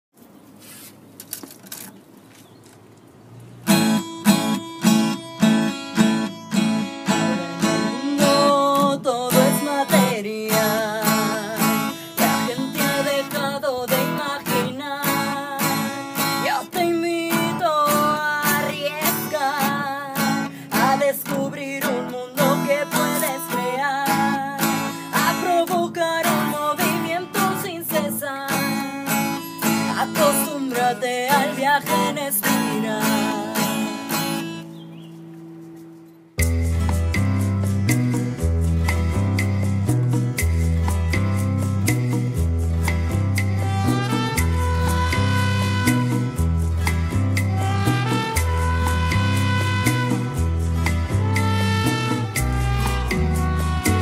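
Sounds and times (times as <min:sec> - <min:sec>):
acoustic guitar strumming: 0:03.4 - 0:54.0
woman singing: 0:07.1 - 0:34.5.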